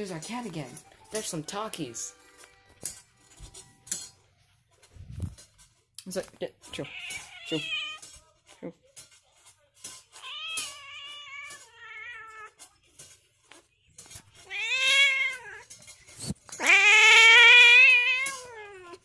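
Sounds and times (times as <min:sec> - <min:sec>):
cat meowing: 0:14.4 - 0:15.6, 0:16.6 - 0:19.0.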